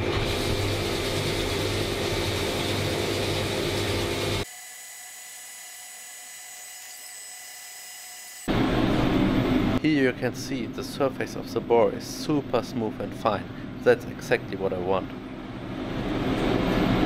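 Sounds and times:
machine cutting metal: 0.0s - 8.7s
high machine whine: 5.6s - 13.9s.

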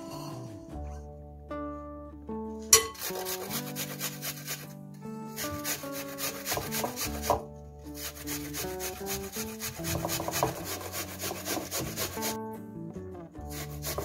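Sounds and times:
simple melody: 0.0s - 14.0s
apple grated on metal grater: 2.8s - 12.4s, 13.5s - 14.0s.

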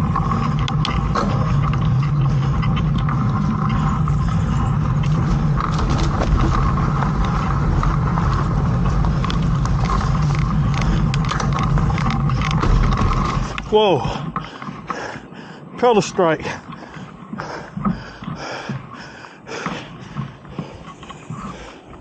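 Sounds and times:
bike clicks and rattles: 0.0s - 22.0s
rushing ride noise: 0.0s - 22.0s.

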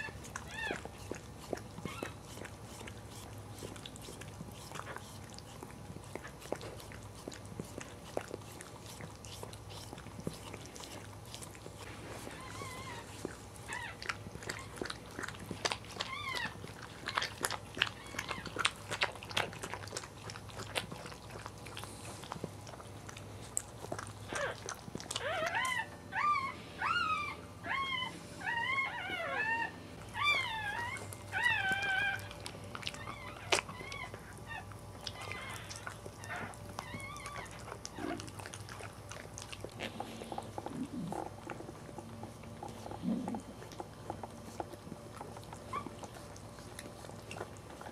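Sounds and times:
puppy squealing: 0.0s - 1.2s, 1.8s - 2.4s, 12.2s - 18.7s, 24.3s - 38.2s
dog licking wet slurps: 0.0s - 25.3s.

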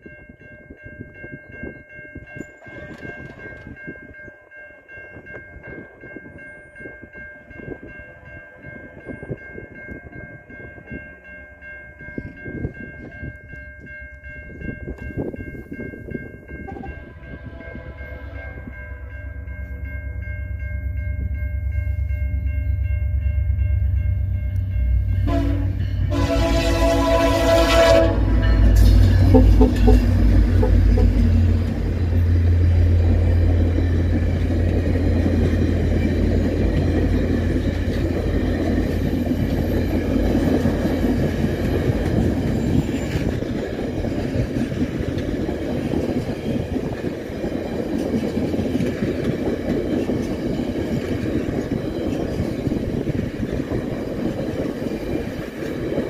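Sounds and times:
train wheels on rails: 1.1s - 11.4s, 12.0s - 56.0s
clickety-clack over rail joints: 2.3s - 4.4s, 14.9s - 16.9s, 25.3s - 56.0s
train horn blast: 16.7s - 19.1s, 25.2s - 31.5s.

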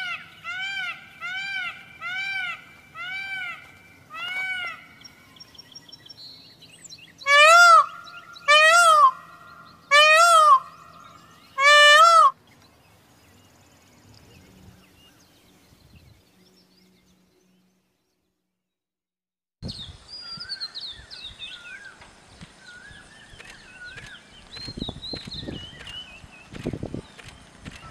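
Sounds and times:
peacock wailing calls: 0.0s - 5.2s, 7.2s - 12.4s
small birds chirping: 19.6s - 27.9s.

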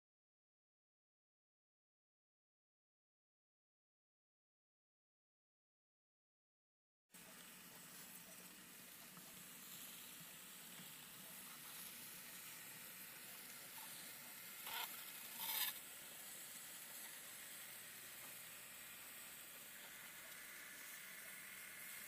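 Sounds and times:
model train running on track: 7.2s - 22.0s.

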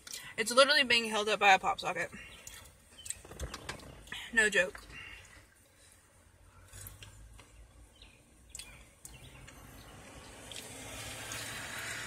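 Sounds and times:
faint traffic ambience: 0.0s - 12.0s
clicks and rustles of eating fries: 6.6s - 7.6s
passing car hum and hiss: 9.2s - 12.0s.

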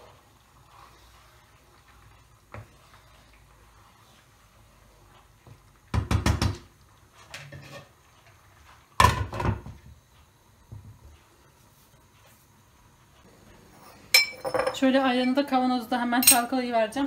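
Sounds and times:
wooden spoon knocking on frying pan: 5.9s - 6.7s, 9.0s - 9.8s.

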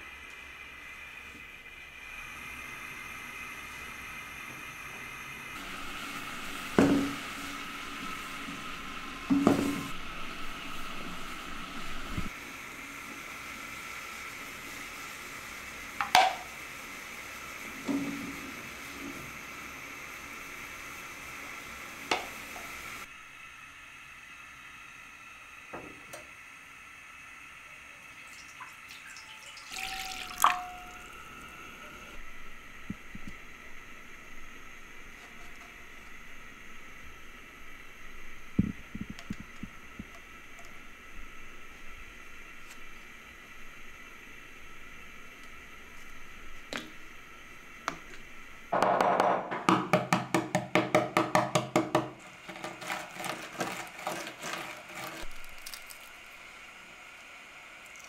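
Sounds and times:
water pouring into a pan: 28.1s - 31.3s, 52.4s - 56.5s
eggshell cracking: 55.2s - 56.4s.

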